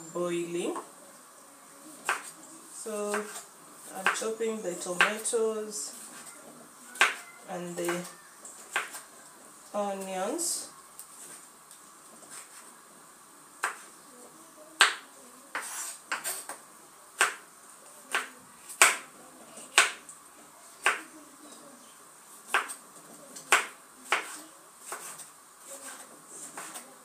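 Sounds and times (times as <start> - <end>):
knife chopping on wooden board: 13.6 - 13.8, 14.8 - 16.5, 18.1 - 19.0, 19.8 - 20.0, 23.5 - 25.2.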